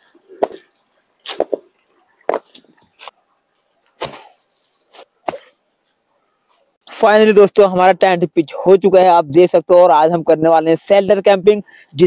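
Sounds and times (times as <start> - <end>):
leaves rustling: 0.0 - 6.7
stones knocking together: 0.4 - 0.7, 1.3 - 1.7, 2.3 - 2.8.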